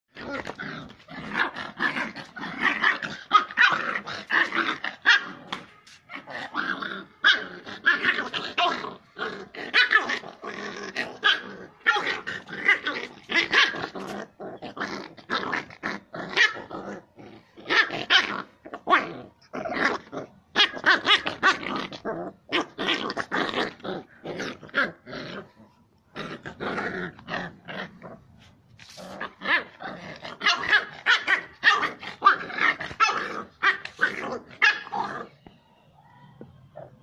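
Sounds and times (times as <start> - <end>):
dog growling: 6.2 - 35.4.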